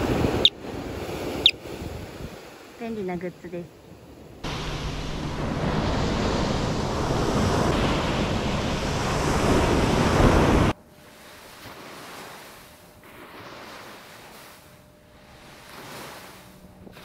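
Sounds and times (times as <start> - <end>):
wind blowing across microphone: 0.0 - 2.9
ocean surf washing onto beach: 0.0 - 3.6, 4.4 - 17.0.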